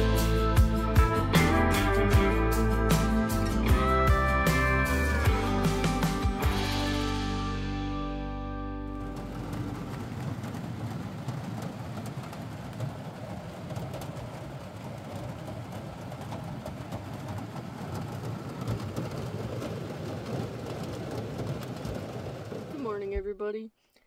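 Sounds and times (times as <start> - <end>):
low engine rumble: 0.0 - 23.5
road and tyre noise: 8.9 - 23.0.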